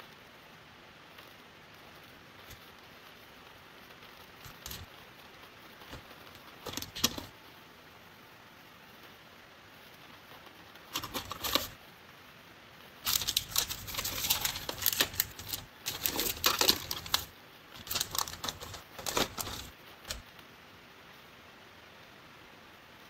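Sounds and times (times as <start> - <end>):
hard plastic clicking and rattling: 4.4 - 4.9, 5.9 - 7.3, 10.9 - 11.8, 13.0 - 20.2.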